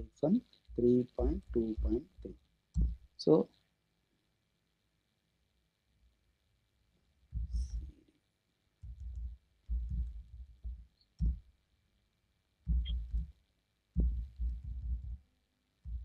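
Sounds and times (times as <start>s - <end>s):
low muffled thuds: 0.7s - 3.1s, 7.3s - 7.9s, 8.8s - 11.5s, 12.6s - 13.3s, 14.0s - 15.2s.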